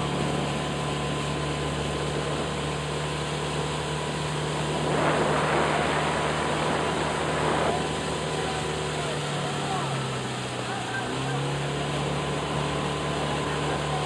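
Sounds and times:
outboard motor humming: 0.0s - 14.0s
rushing noise: 4.1s - 10.6s.

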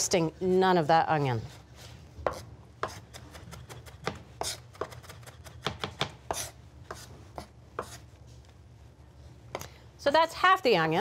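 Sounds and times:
knife chopping on wooden board: 2.2s - 8.0s.

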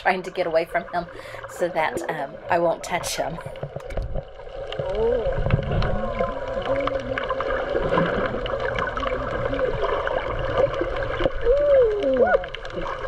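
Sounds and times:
muffled underwater hum: 0.0s - 13.0s
small underwater clicks: 3.4s - 13.0s.

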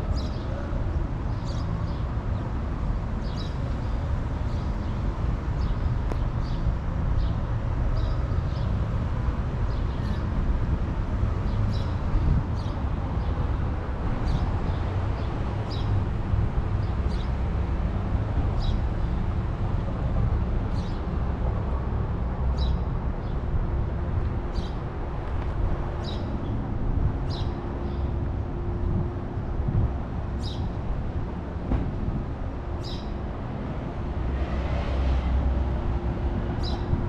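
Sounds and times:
city street traffic rumble: 0.0s - 37.0s.

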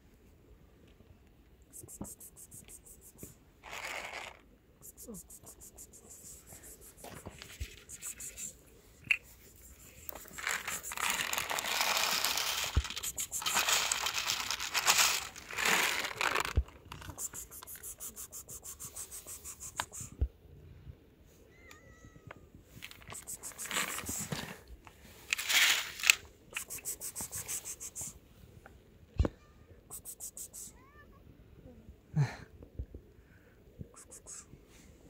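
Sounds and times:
plastic packaging crinkling: 10.1s - 17.1s.

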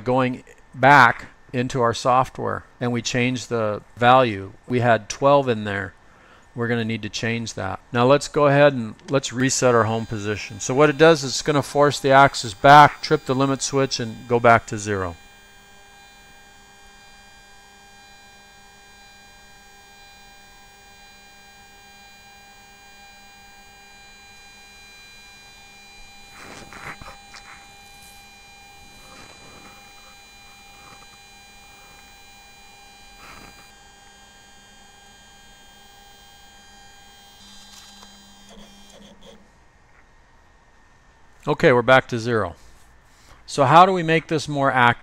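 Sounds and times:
stepper motor whine: 9.3s - 39.4s.

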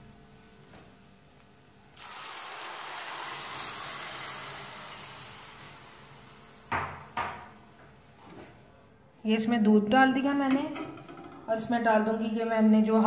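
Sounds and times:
milk sizzling in hot ghee: 2.0s - 7.7s.

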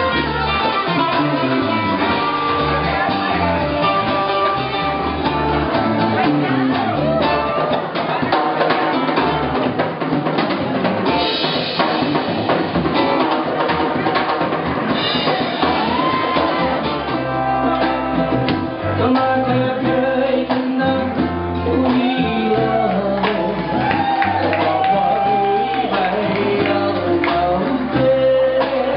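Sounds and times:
drum kit: 0.0s - 28.9s
electric bass: 0.0s - 28.9s
guitar: 0.0s - 28.9s
person singing: 18.8s - 28.9s.

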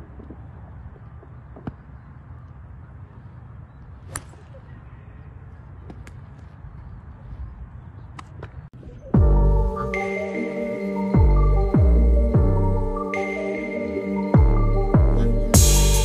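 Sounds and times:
low outdoor background: 0.0s - 16.0s
loud music: 9.2s - 16.0s.

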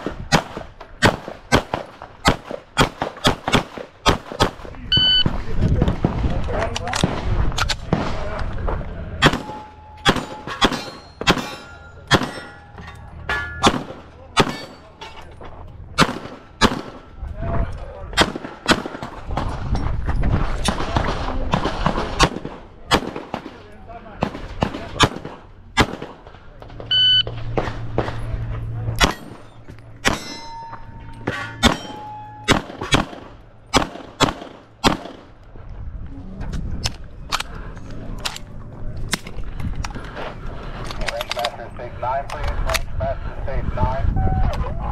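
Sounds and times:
pistol shots: 0.0s - 6.2s, 9.2s - 12.6s, 13.6s - 14.9s, 16.0s - 17.1s, 18.1s - 19.6s, 20.6s - 23.6s, 24.2s - 28.2s, 29.0s - 30.4s, 31.2s - 35.4s
steel targets ringing: 9.2s - 15.1s, 29.0s - 33.0s.

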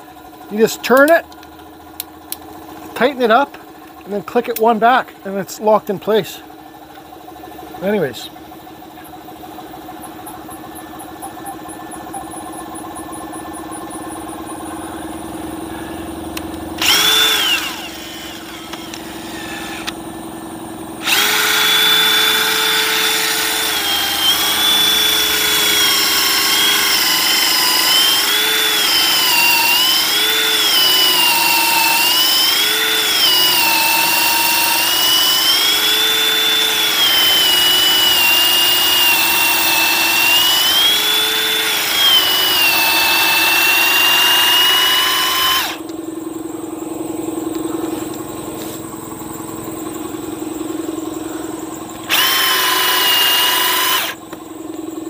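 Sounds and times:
cordless drill boring into wood: 16.8s - 20.0s, 21.0s - 45.8s, 52.1s - 54.2s.

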